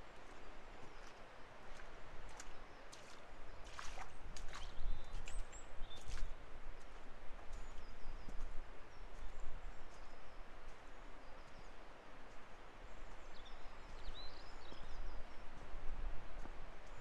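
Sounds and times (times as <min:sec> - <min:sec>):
small birds chirping: 0:00.3 - 0:06.4.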